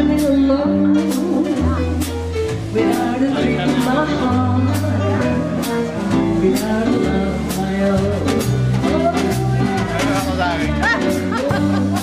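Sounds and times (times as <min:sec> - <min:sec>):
double bass notes: 0:00.0 - 0:12.0
drum kit with cymbal strokes: 0:00.0 - 0:12.0.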